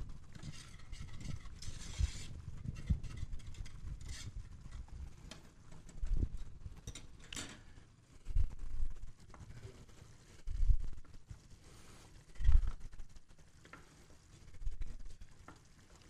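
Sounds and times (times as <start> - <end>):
whisk swishing in yogurt: 0.0 - 5.2.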